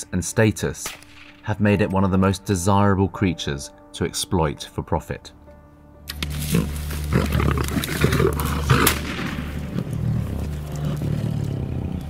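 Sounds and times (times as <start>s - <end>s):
rustling through dry grass: 6.2s - 11.5s
lion growling: 6.2s - 12.0s.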